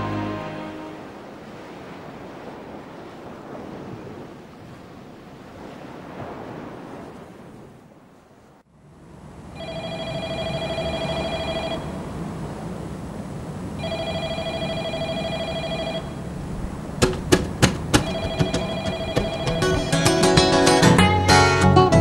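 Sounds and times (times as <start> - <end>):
telephone ringing: 9.6 - 12.0, 13.8 - 16.2, 18.0 - 20.6
sharp knocks: 17.0 - 21.0.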